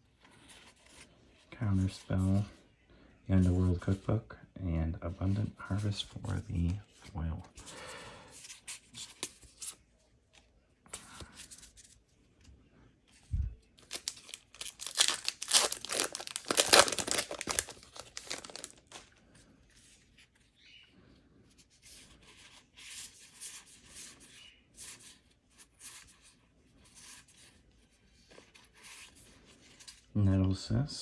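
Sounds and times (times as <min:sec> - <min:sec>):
cards rustling and flicking: 0:13.6 - 0:19.1
foil wrapper crinkling and tearing: 0:13.8 - 0:19.0.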